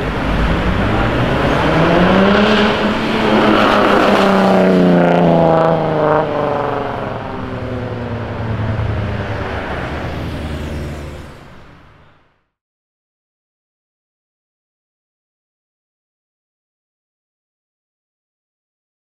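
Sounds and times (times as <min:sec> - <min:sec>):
loud car exhaust accelerating: 0:00.0 - 0:12.3.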